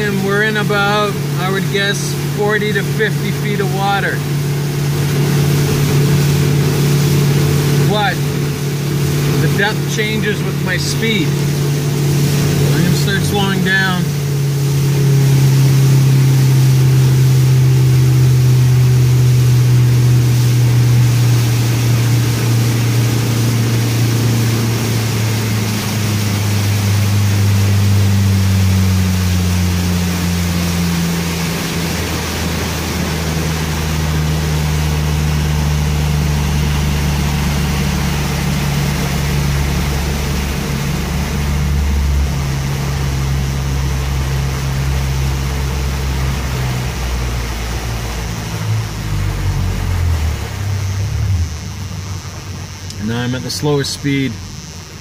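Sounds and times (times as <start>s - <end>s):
motorboat engine: 0.0s - 55.0s
steady hiss: 49.4s - 55.0s.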